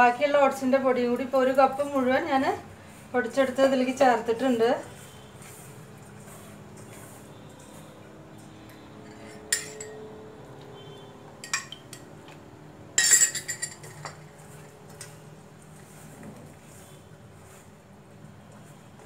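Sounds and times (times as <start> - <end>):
spoon scraping a bowl: 4.8 - 12.1
metal spoon clinking in a bowl: 9.0 - 10.1, 11.4 - 12.1, 13.0 - 14.2.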